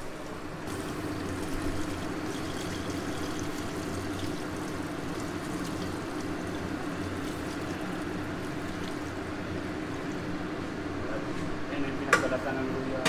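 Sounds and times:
liquid splashing and trickling: 0.7 - 10.3.

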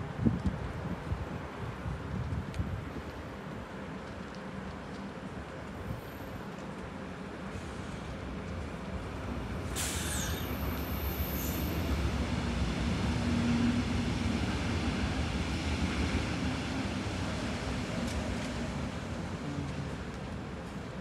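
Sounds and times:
train running past: 3.4 - 21.0
electric train pulling out: 9.6 - 14.1.

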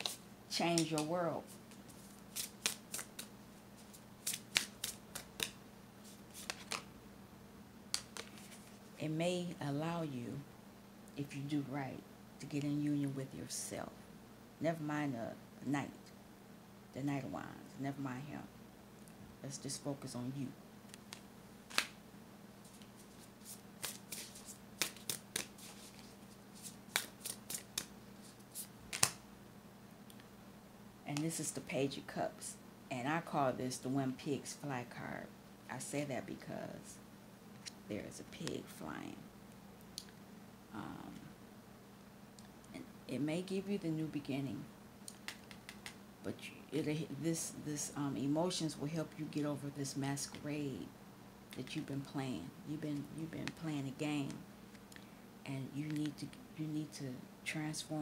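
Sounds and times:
faint low hum: 0.0 - 58.0
cards clicking and flicking: 2.3 - 3.3, 4.2 - 5.6, 6.4 - 6.9, 7.9 - 8.5, 20.9 - 22.0, 23.8 - 27.9, 28.9 - 29.2, 45.1 - 46.0.

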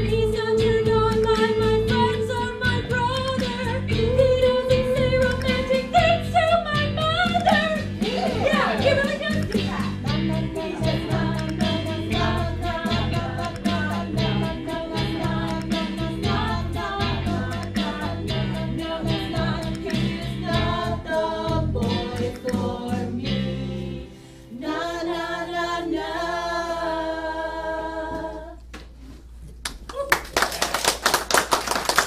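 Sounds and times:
backing music: 0.0 - 28.4
women singing in harmony: 0.0 - 28.7
audience applause: 29.9 - 32.0.

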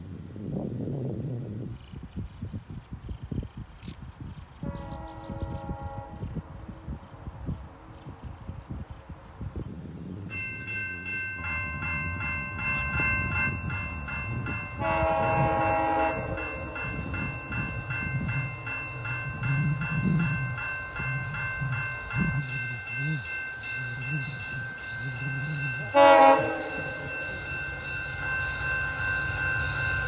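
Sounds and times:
train rumble: 2.9 - 30.0
train horn chord: 4.6 - 6.8, 14.7 - 17.2, 25.2 - 27.5
locomotive bell ringing: 10.3 - 30.0.

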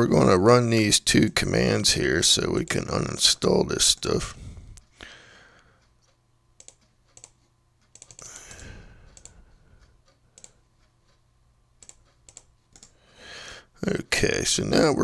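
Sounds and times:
mouse and keyboard clicks: 6.6 - 9.4.

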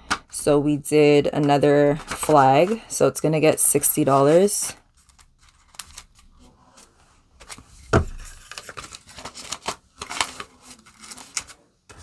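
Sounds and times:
plastic banknotes crinkling: 1.6 - 2.9, 4.0 - 6.4, 7.4 - 12.0.

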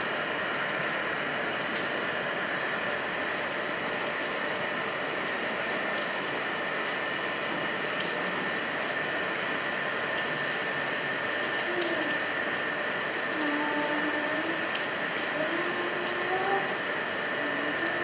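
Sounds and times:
faint high hum: 0.0 - 18.0
rain falling on rock: 0.0 - 18.0.

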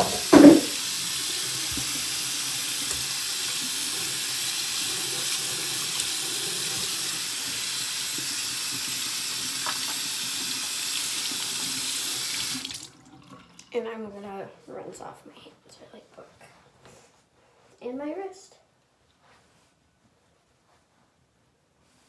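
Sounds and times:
faucet running: 0.0 - 13.8.

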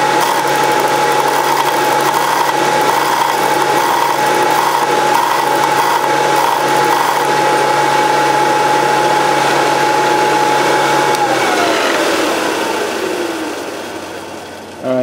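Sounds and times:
metal grinding on sanding belt: 0.0 - 8.5
belt sander whining: 0.0 - 14.8.

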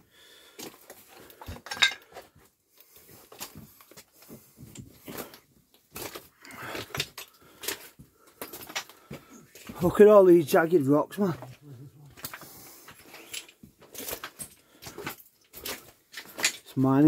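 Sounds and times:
crunches and scrapes on loose rock: 2.2 - 9.9.

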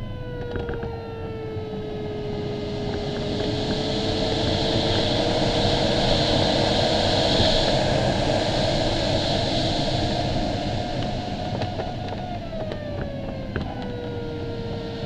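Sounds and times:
airflow rushing over canopy: 2.1 - 12.6.

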